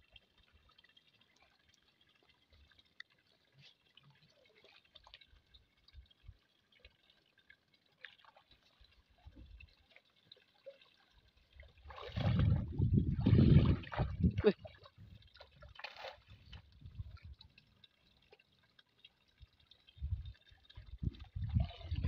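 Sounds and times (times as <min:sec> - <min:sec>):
water dripping and lapping: 0:00.0 - 0:22.0
water splashing off net: 0:15.7 - 0:16.4.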